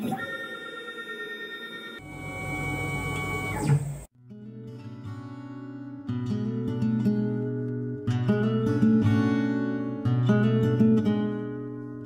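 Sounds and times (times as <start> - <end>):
soft acoustic guitar music: 4.2 - 12.0.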